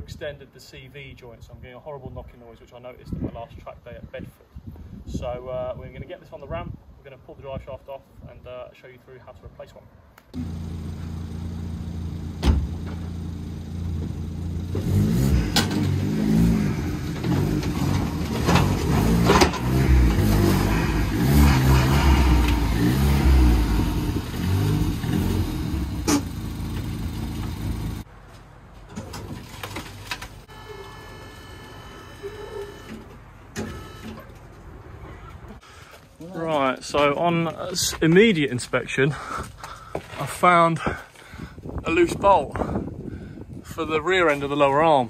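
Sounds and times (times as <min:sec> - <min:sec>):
car engine idling and revving: 0:10.4 - 0:28.1.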